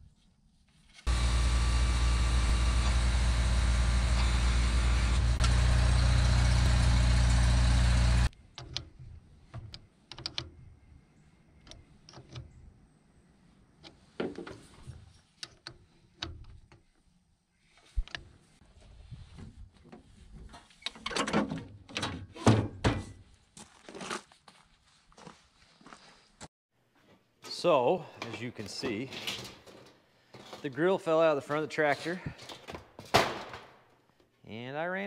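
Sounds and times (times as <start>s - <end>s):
loud steady motor: 1.1s - 8.3s.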